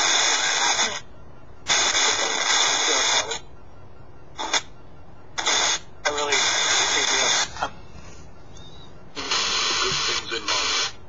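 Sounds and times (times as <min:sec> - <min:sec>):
bursts of hissing static: 0:05.4 - 0:07.5, 0:09.2 - 0:11.0.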